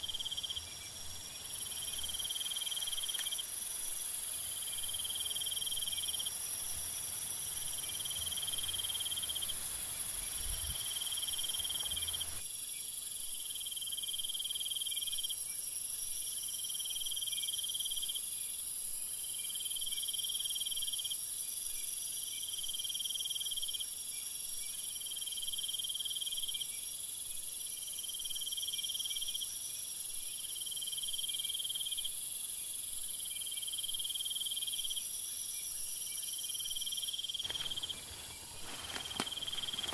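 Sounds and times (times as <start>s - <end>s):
high cricket trill: 0.0s - 12.4s, 37.0s - 39.9s
lower pulsing cricket trill: 0.0s - 39.9s.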